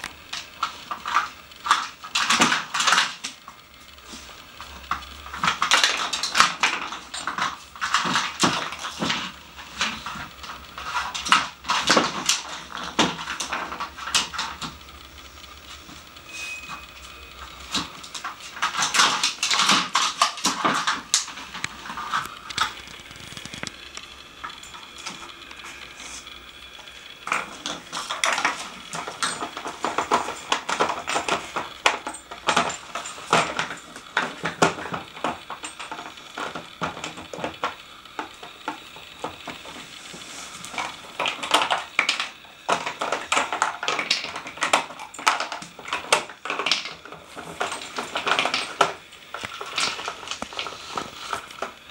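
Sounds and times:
plastic puzzle clattering and clicking: 0.0s - 16.2s, 17.0s - 51.9s.

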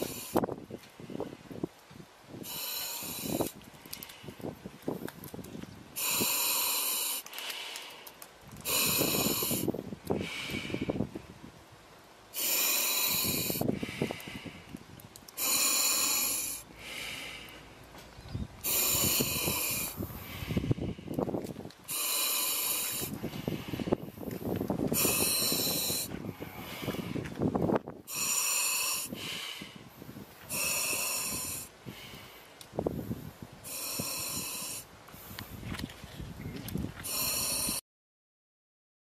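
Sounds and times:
hissing breaths through gas mask: 0.0s - 1.4s, 2.4s - 4.6s, 6.0s - 11.1s, 12.3s - 14.8s, 15.4s - 17.8s, 18.6s - 21.2s, 21.8s - 35.7s, 37.0s - 37.8s
rasping breaths: 0.0s - 1.4s, 2.4s - 5.0s, 6.0s - 11.1s, 12.3s - 18.0s, 18.6s - 35.7s, 37.0s - 37.8s.

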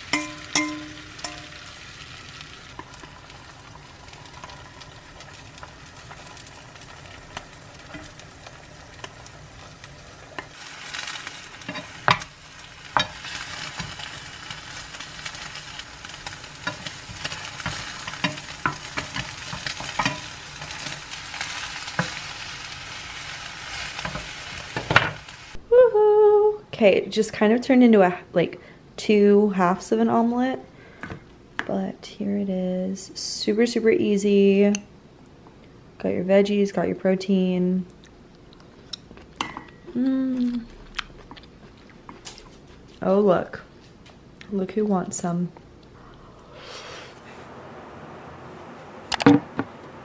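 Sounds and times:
egg sizzling in oil: 0.0s - 25.6s
spatula scraping pan: 16.3s - 22.3s.

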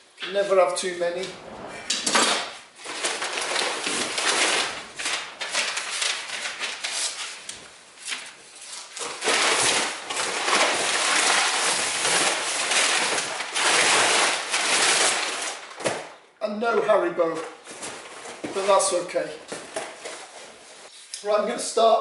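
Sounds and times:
cardboard flaps scraping: 1.2s - 7.4s
packing paper rustling: 2.8s - 16.1s, 17.4s - 18.8s.

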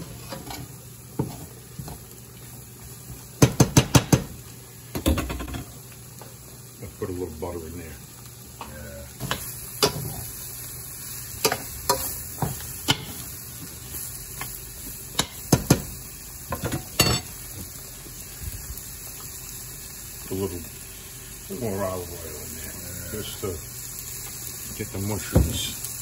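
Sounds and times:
low sizzle: 0.0s - 26.0s
metal spoon clinking against pan: 17.0s - 17.3s.

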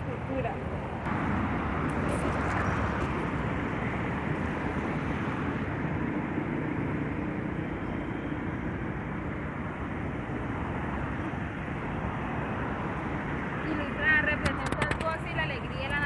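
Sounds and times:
faint engine hum: 0.0s - 16.0s
street traffic rumble: 0.0s - 16.0s.

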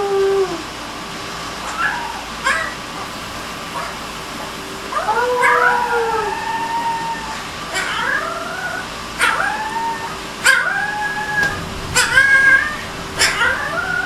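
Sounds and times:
puppy howling: 0.0s - 0.7s, 1.6s - 2.8s, 4.8s - 14.0s.

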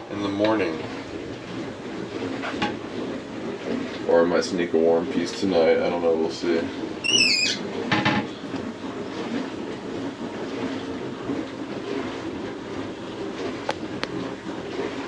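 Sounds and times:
low mechanical hum: 0.0s - 15.0s
high warbling squeak: 7.0s - 7.7s.

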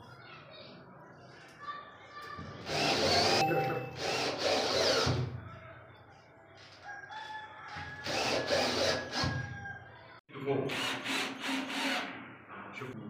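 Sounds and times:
cordless drill driving screws: 2.7s - 3.4s, 4.0s - 5.2s, 8.0s - 9.3s.

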